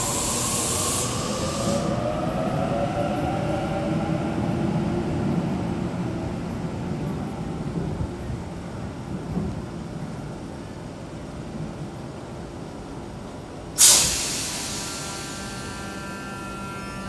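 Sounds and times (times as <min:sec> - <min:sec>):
high hiss: 0:00.0 - 0:02.4, 0:13.8 - 0:17.0
wheels rumbling on rails: 0:00.0 - 0:13.8
train motor whine: 0:13.9 - 0:17.0.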